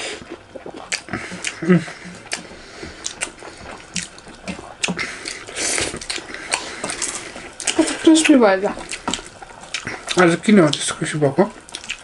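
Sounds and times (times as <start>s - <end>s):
wet chewing and lip smacks: 0.0s - 12.0s
fingers mixing food on metal plates: 0.9s - 12.0s.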